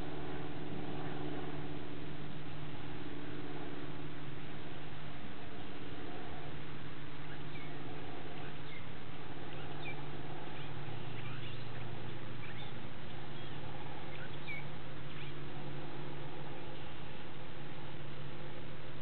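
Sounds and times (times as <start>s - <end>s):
low hum: 0.0s - 19.0s
high bird chirps: 9.5s - 15.4s.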